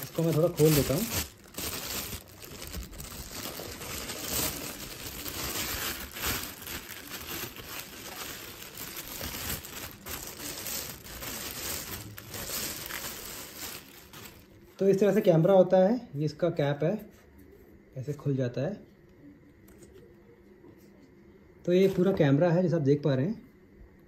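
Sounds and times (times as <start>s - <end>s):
plastic bag crinkling: 0.0s - 15.0s, 21.8s - 22.2s.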